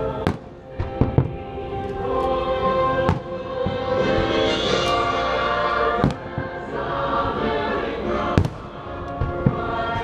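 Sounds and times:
music with sustained tones: 0.0 - 10.0
fireworks bursting: 3.0 - 6.6, 8.3 - 10.0.

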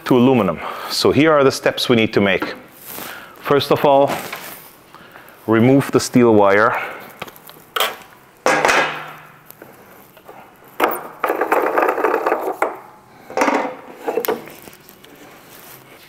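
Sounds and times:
knocks clicks and rattles: 10.8 - 14.5.

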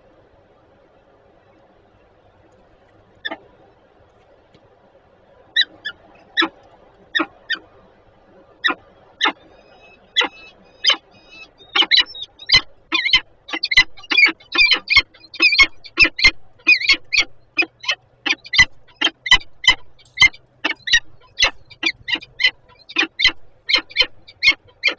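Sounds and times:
falcon harsh calls: 5.6 - 7.7, 8.6 - 24.9.

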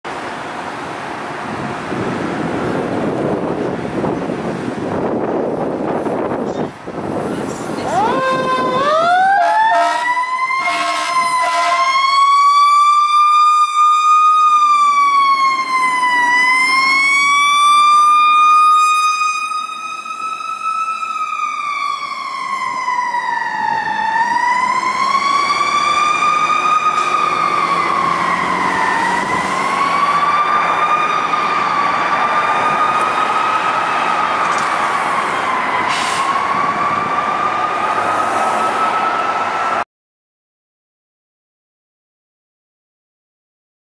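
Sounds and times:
mechanical siren wailing: 7.8 - 39.8
short horn blasts: 9.4 - 11.8.

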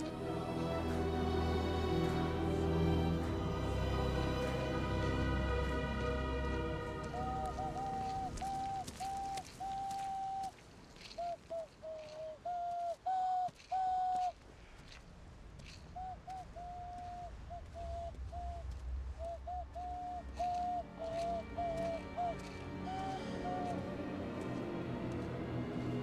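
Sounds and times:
hand whistle dove-like notes: 6.6 - 10.6, 11.2 - 14.3, 19.2 - 24.1.

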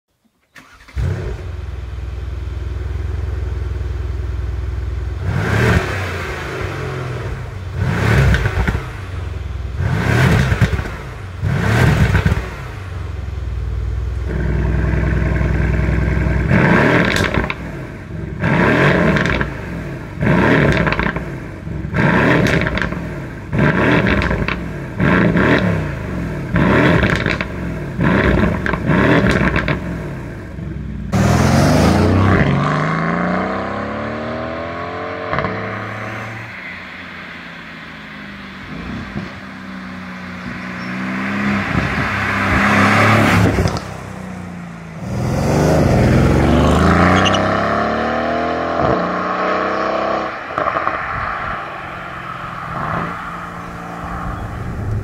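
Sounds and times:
car engine starting and idling: 0.2 - 55.0
engine revving in blips: 5.2 - 9.1, 9.8 - 12.8, 14.3 - 36.2, 45.0 - 51.6.

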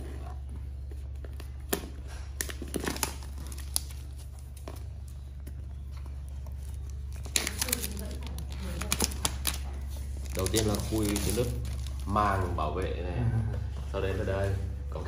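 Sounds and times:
steady low hum: 0.0 - 15.0
plastic wrap crinkling and tearing: 1.4 - 5.2, 6.2 - 12.5.

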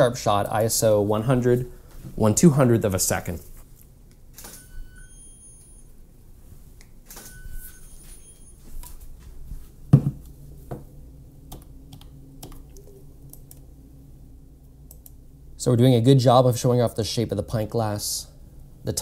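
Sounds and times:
camera shutter clicks: 4.3 - 4.7, 7.1 - 7.4
faint high whine: 4.3 - 9.6.

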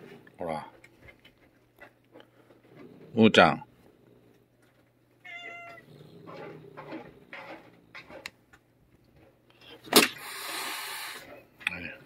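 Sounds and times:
soft noisy handling sounds: 0.0 - 9.9
cat crying: 5.2 - 5.9.

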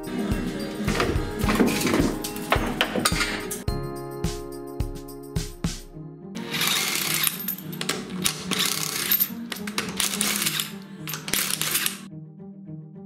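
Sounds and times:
impact wrench hammering: 6.5 - 12.1.

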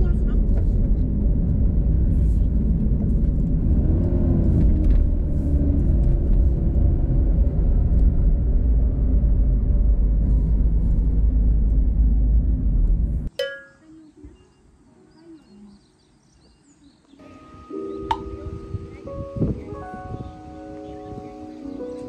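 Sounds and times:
car road rumble: 0.0 - 13.3.

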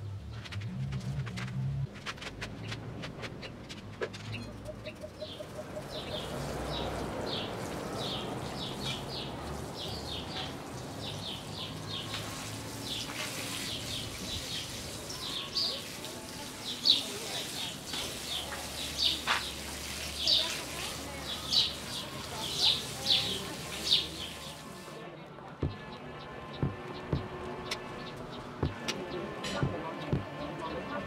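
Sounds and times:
birds chirping: 2.5 - 31.0
water spray pattering on soil: 6.3 - 25.0.

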